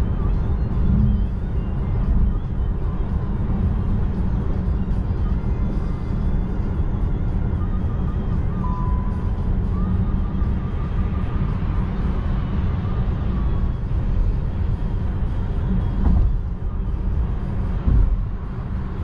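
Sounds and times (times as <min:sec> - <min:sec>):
tyre and wind noise in car: 0:08.2 - 0:19.0
dull thumps: 0:17.8 - 0:18.3.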